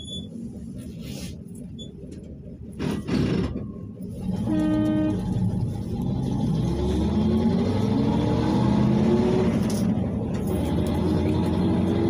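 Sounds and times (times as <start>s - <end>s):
bus engine rumble: 0.0s - 12.0s
bus horn toot: 4.3s - 5.5s.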